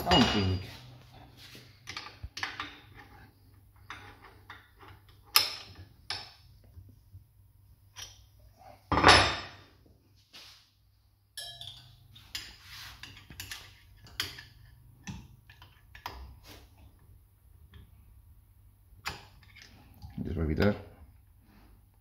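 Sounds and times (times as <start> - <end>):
metal clicks and knocks: 1.8 - 3.1.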